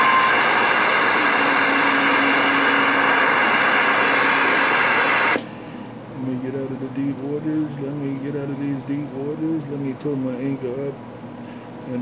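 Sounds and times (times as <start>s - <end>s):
radio static: 0.0s - 5.4s.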